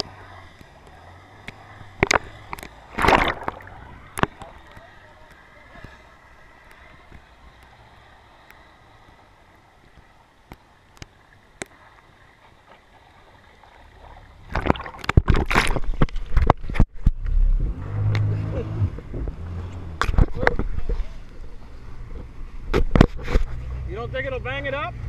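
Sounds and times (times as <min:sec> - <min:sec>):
light ticks: 0:09.8 - 0:11.8
camera knocking and rubbing: 0:22.7 - 0:23.6.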